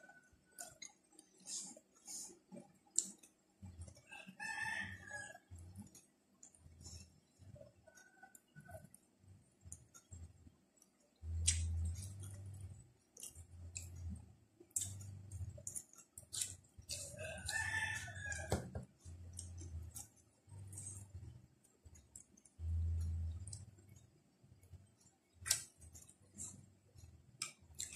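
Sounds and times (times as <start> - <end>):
wet mouth clicks: 0.6 - 3.8, 11.3 - 12.6, 13.2 - 17.2, 25.4 - 27.9
rooster crowing: 4.1 - 5.4, 17.2 - 18.7.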